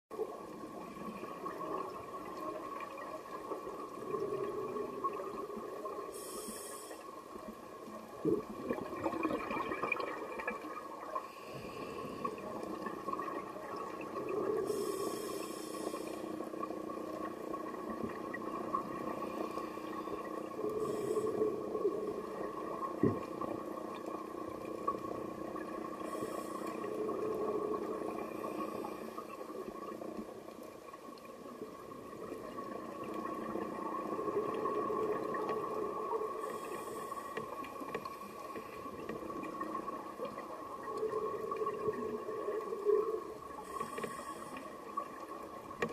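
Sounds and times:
steady hum: 0.1 - 45.9
regulator inhale hiss: 6.0 - 7.2, 11.2 - 12.5, 14.6 - 16.5, 19.1 - 21.9, 25.9 - 27.3, 28.0 - 29.3, 36.3 - 37.6, 43.6 - 45.0
exhale bubbling rumble: 8.0 - 11.1, 38.9 - 43.7.

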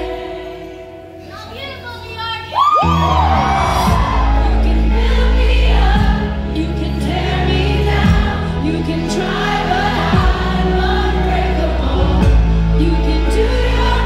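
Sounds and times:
crowd singing along: 0.0 - 1.3, 3.0 - 14.0
low bass backing track: 2.8 - 14.0.

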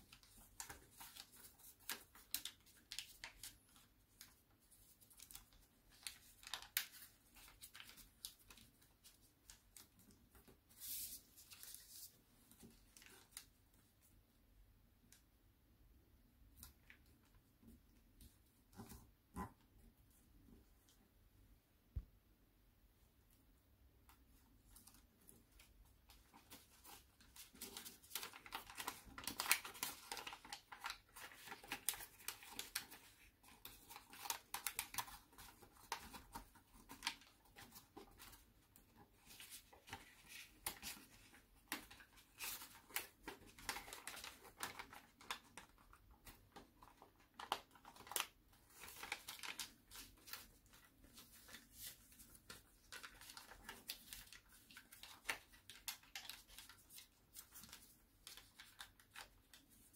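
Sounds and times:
paper crinkling and rustling: 0.0 - 14.1, 24.1 - 59.9.

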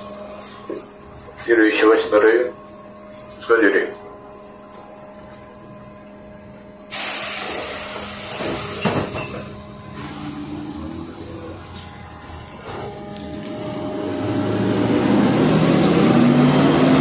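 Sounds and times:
compressed air hissing: 6.9 - 9.2, 10.0 - 11.2.

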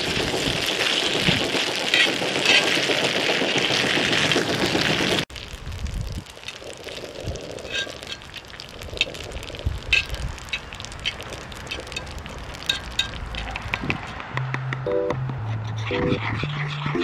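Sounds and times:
faint sizzling pan: 0.0 - 13.5.

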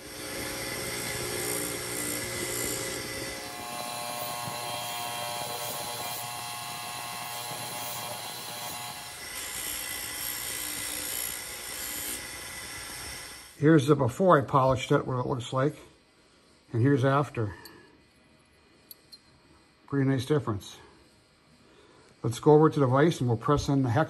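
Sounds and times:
buffer motor whirring: 0.0 - 9.6.

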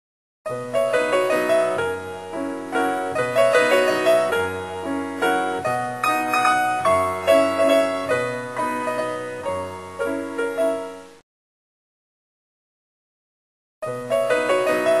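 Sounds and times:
keyboard instrument melody: 0.9 - 10.2.

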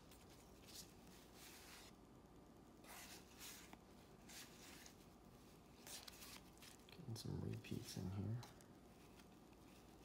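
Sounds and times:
cardboard cards rustling: 0.0 - 1.9, 2.8 - 10.0.

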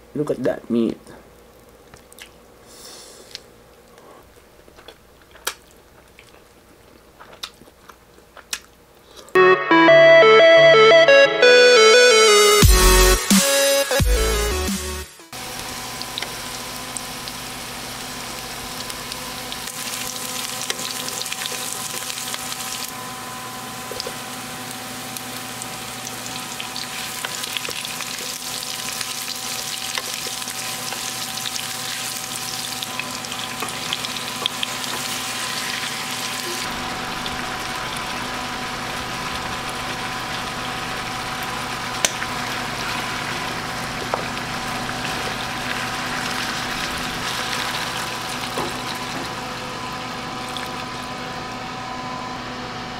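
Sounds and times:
oil sizzling in a frying pan: 15.4 - 51.3.

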